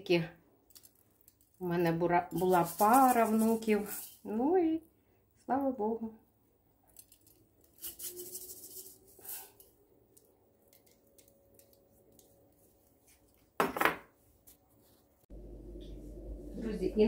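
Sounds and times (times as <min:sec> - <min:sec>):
rustling in a steel saucepan: 0:00.7 - 0:04.5, 0:06.9 - 0:13.6.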